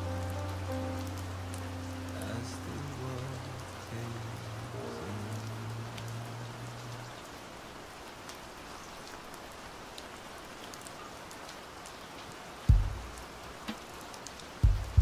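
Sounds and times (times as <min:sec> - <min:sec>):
song with low held notes: 0:00.0 - 0:07.0
steady rain hiss: 0:00.0 - 0:15.0.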